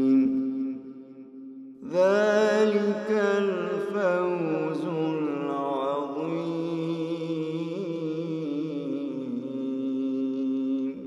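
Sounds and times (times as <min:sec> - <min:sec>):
man chanting melodically: 0:00.0 - 0:11.0.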